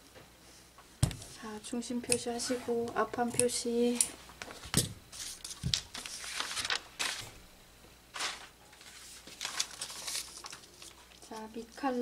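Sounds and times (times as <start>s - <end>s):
paper and fabric rustling: 4.4s - 7.4s, 8.1s - 12.0s.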